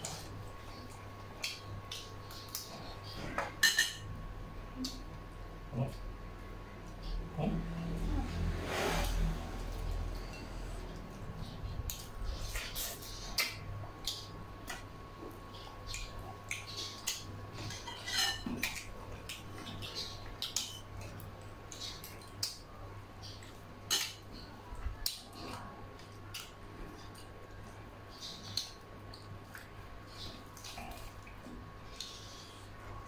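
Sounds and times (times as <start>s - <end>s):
cutlery clinking on ceramic bowls: 3.4s - 4.0s, 17.6s - 18.9s.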